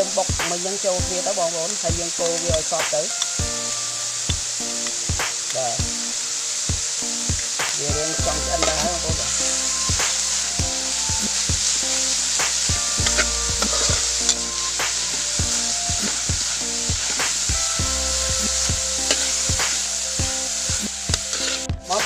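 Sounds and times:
meat sizzling in wok: 0:00.0 - 0:22.0
metal spatula scraping wok: 0:07.6 - 0:22.0.

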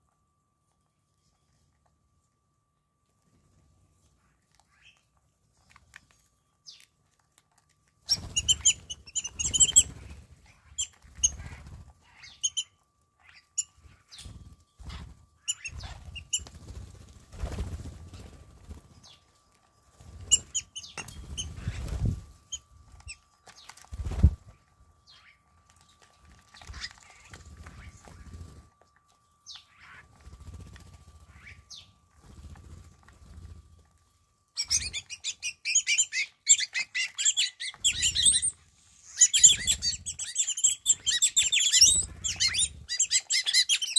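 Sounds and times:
wings fluttering and flapping: 0:08.0 - 0:12.6, 0:13.3 - 0:28.9, 0:29.5 - 0:43.9
starlings chirping and squeaking: 0:08.1 - 0:16.8, 0:20.1 - 0:24.4, 0:34.6 - 0:43.9.

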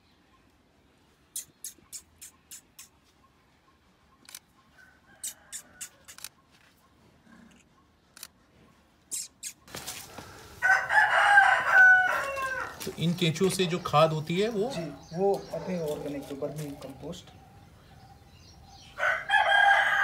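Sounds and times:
sharp high clicks: 0:01.4 - 0:03.0, 0:05.2 - 0:06.4
rooster crowing: 0:04.8 - 0:06.1, 0:10.6 - 0:13.0, 0:19.0 - 0:20.0.

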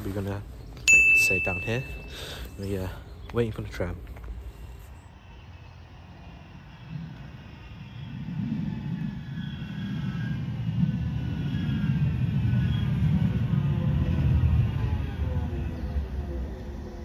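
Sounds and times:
faint whine: 0:00.0 - 0:17.0
tram rumbling: 0:05.4 - 0:17.0.

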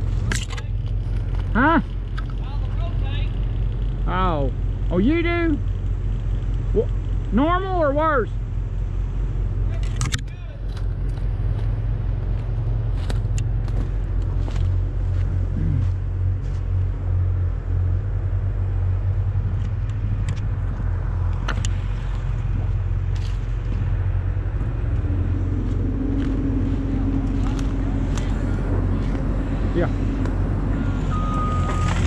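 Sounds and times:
diesel engine rumbling: 0:00.0 - 0:32.0
dry leaves crackling underfoot: 0:10.7 - 0:16.8, 0:21.8 - 0:24.1.

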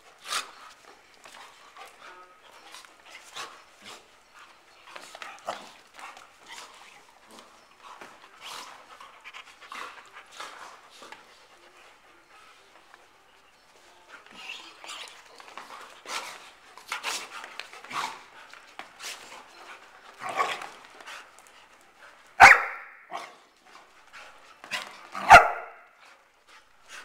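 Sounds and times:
dogs scuffling: 0:00.0 - 0:27.0
dogs play-fighting vocalisations: 0:14.2 - 0:18.4
dog barking loudly: 0:22.4 - 0:23.2, 0:25.2 - 0:25.8.

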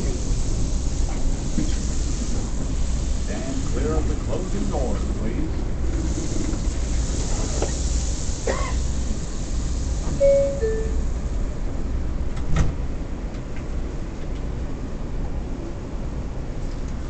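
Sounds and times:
stopped train rumbling: 0:00.0 - 0:17.0
two-tone door chime: 0:10.2 - 0:11.0.

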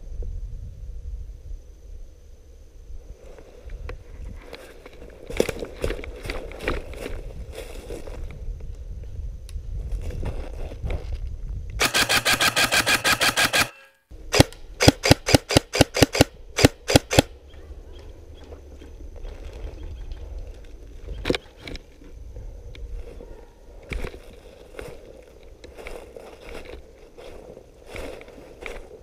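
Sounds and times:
airsoft gun firing: 0:11.8 - 0:17.3.

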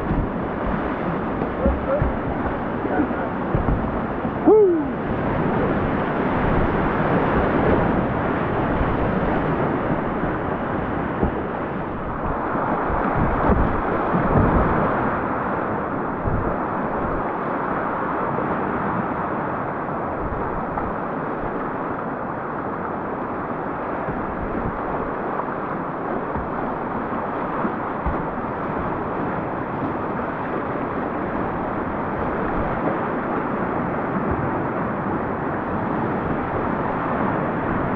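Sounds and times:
low thumps: 0:00.0 - 0:14.8, 0:27.9 - 0:29.1
river rapids rushing: 0:00.0 - 0:37.9.

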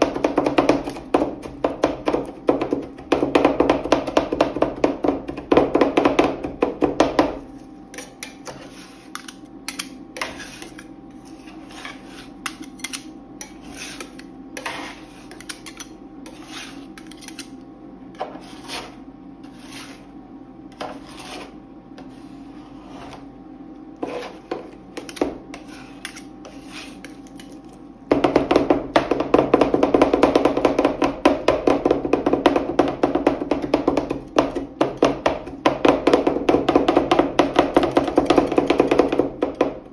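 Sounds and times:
metal spatulas chopping on cold plate: 0:00.0 - 0:17.6, 0:24.0 - 0:28.3
spatulas scraping across metal plate: 0:07.9 - 0:17.6, 0:18.2 - 0:20.1, 0:20.8 - 0:23.2, 0:24.0 - 0:27.6.

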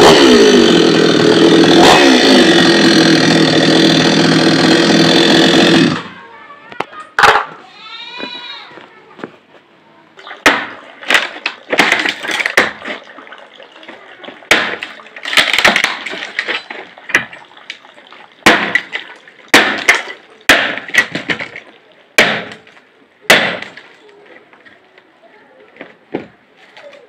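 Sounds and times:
wood cracking and splitting: 0:00.0 - 0:06.2, 0:10.4 - 0:13.0, 0:13.8 - 0:17.8, 0:18.4 - 0:24.2
axe chopping log: 0:10.4 - 0:13.0, 0:14.5 - 0:17.3, 0:18.4 - 0:21.6, 0:22.2 - 0:23.9.

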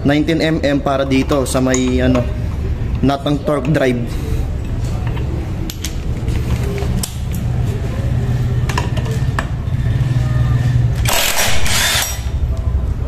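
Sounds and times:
impact wrench hammering: 0:11.0 - 0:12.4.

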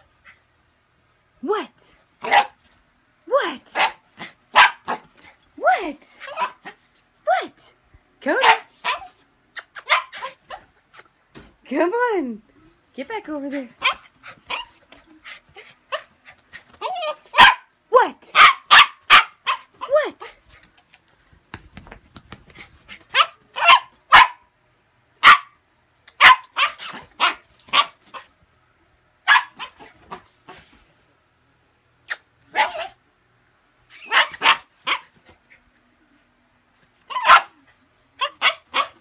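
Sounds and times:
puppy barking: 0:02.2 - 0:02.6, 0:03.8 - 0:05.0, 0:08.4 - 0:10.4, 0:13.8 - 0:14.7, 0:16.8 - 0:17.7, 0:18.3 - 0:19.9, 0:23.1 - 0:24.5, 0:25.2 - 0:25.6, 0:26.2 - 0:28.3, 0:29.2 - 0:29.9, 0:32.5 - 0:33.0, 0:34.0 - 0:35.1, 0:37.1 - 0:37.6, 0:38.2 - 0:39.0.

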